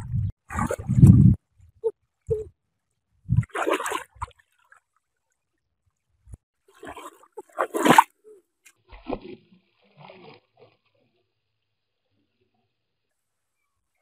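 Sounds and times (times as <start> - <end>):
water splashing: 0.0 - 1.4, 3.3 - 4.9, 6.7 - 8.2.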